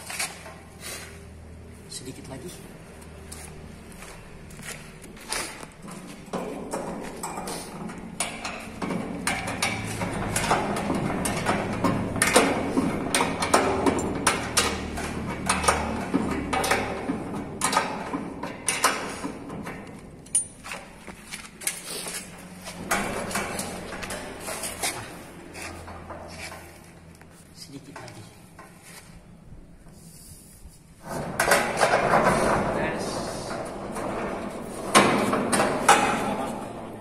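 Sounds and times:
steel door clicks and rattles: 5.2 - 21.8, 22.4 - 25.2, 31.0 - 37.0.

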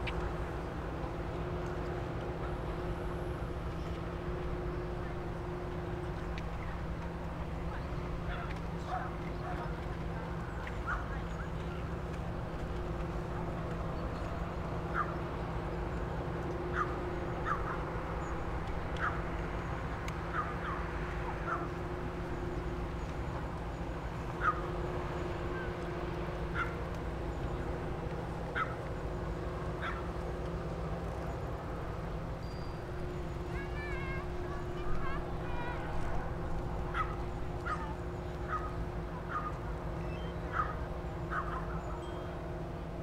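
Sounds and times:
steady low rumble: 0.0 - 43.0
birds calling: 36.9 - 42.4.

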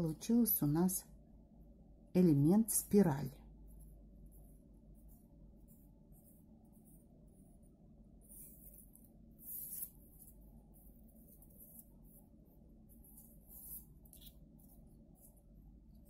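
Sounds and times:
paper strip rustling: 8.3 - 12.0.

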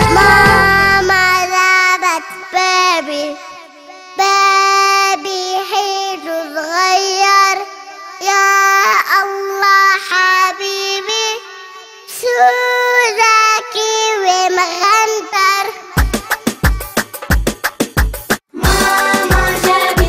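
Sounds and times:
girl singing: 0.0 - 17.0.

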